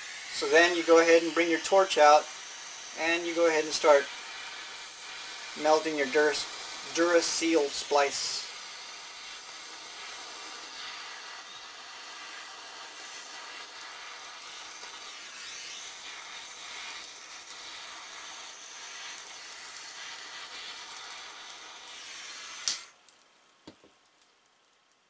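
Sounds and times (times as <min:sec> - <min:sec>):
butane torch hissing: 0:00.0 - 0:23.0
sharp click: 0:22.6 - 0:22.9.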